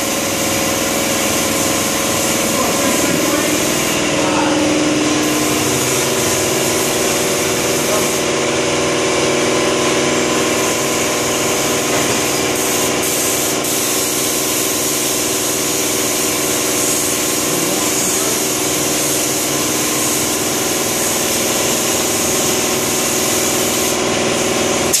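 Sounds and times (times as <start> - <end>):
spray gun hissing: 0.0 - 25.0
machine hum: 0.6 - 12.6.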